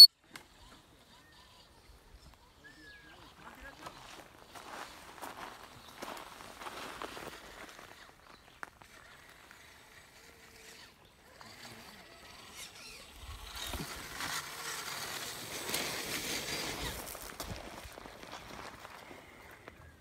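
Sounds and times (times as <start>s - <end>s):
rc truck motor running: 0.0s - 5.1s, 7.3s - 17.3s
tyres crunching over gravel: 3.8s - 8.6s, 14.1s - 19.8s.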